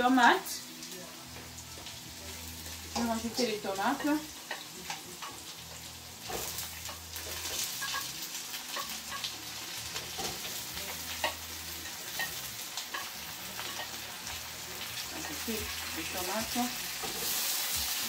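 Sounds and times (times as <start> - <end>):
vegetables sizzling in a pan: 0.0 - 18.0
spatula clicking and tapping: 2.7 - 8.1, 8.7 - 14.0.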